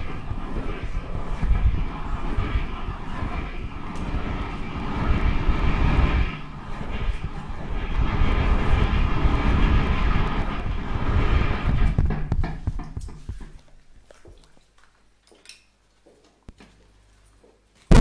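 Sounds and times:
grainy low electronic rumble: 0.0s - 12.2s.

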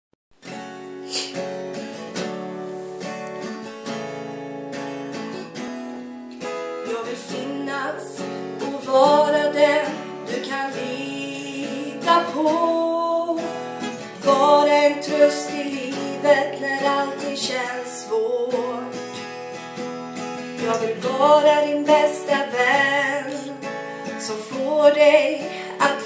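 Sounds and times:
acoustic guitar strumming: 0.4s - 26.0s
woman singing: 6.8s - 19.3s, 20.6s - 26.0s.

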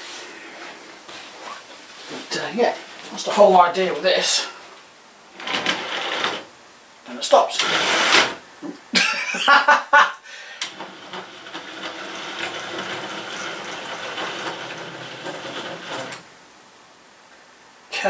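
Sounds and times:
model train motor whirring: 5.4s - 6.4s, 7.6s - 8.4s, 10.6s - 16.2s.

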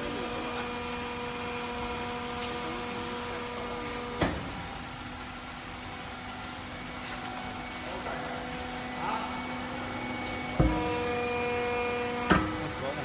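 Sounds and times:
metal curling machine humming: 0.0s - 13.0s
machine clunk: 10.6s - 11.2s, 12.2s - 12.8s.

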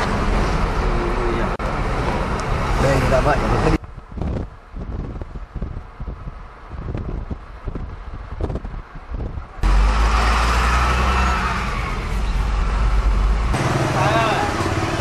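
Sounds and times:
car engine and road noise: 0.0s - 15.0s
wind buffeting microphone: 3.8s - 9.7s.

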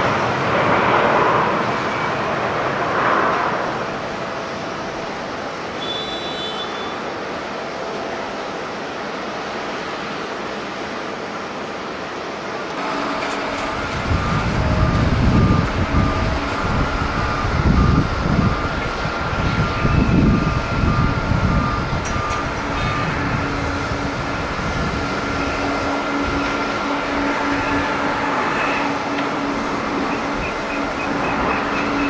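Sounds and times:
jet engines whining and rumbling: 0.0s - 32.0s
wind buffeting microphone: 12.8s - 32.0s.

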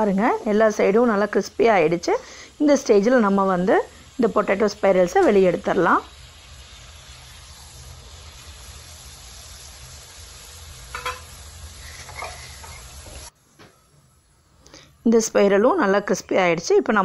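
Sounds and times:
oil sizzling: 0.0s - 17.0s.

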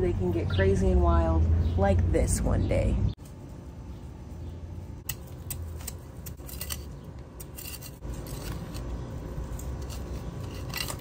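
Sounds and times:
metal trowel scraping soil: 5.4s - 11.0s.

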